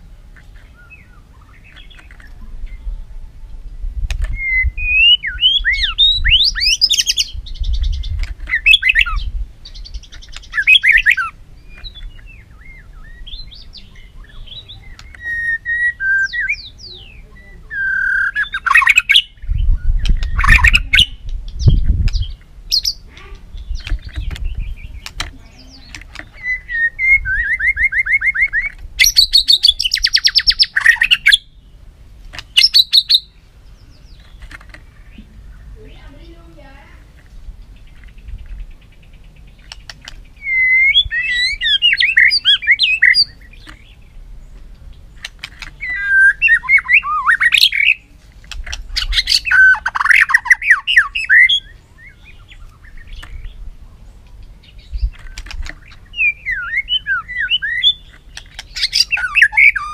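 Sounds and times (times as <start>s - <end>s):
bird singing varied whistles: 4.3s - 23.0s, 26.4s - 31.6s, 32.5s - 33.4s, 40.4s - 43.7s, 45.8s - 48.0s, 49.0s - 53.6s, 56.1s - 59.9s.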